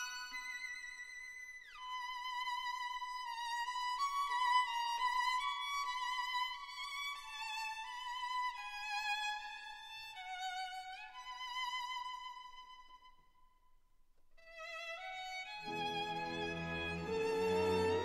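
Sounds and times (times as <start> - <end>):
solo violin melody: 0.0 - 13.0, 14.4 - 18.0.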